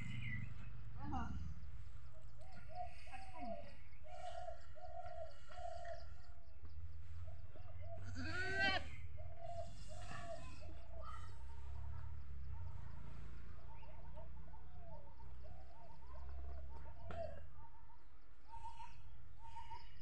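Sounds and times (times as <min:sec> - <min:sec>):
goat bleating: 0:08.2 - 0:08.9.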